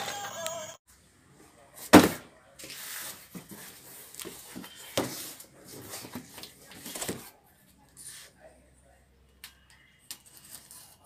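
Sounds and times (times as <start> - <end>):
cardboard scraping and rustling: 1.8 - 7.3
box thumping on wooden desk: 1.9 - 2.2.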